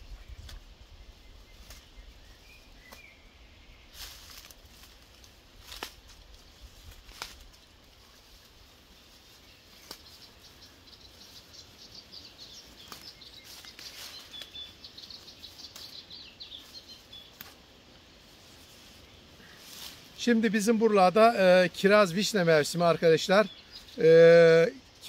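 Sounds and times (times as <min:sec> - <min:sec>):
leaves rustling: 0:00.0 - 0:25.0
sickle cutting stems: 0:01.5 - 0:02.0, 0:02.8 - 0:03.1, 0:03.9 - 0:08.5, 0:09.7 - 0:10.4, 0:12.6 - 0:20.2
stems snapping: 0:01.6 - 0:01.9, 0:04.0 - 0:07.7, 0:09.7 - 0:10.2, 0:12.8 - 0:14.8, 0:15.7 - 0:16.0, 0:17.2 - 0:17.7.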